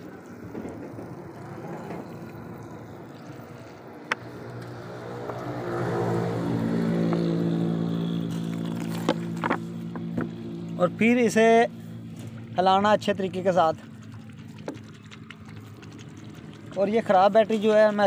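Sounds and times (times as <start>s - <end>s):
steady engine hum: 0.0s - 18.0s
water trickling from a bottle: 2.0s - 4.6s, 8.2s - 10.9s, 12.2s - 18.0s.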